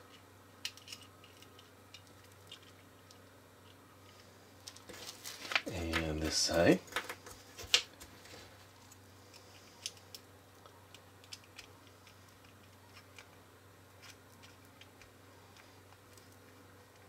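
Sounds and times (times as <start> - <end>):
plastic pieces clicking and tapping: 0.6 - 3.8, 10.9 - 13.4.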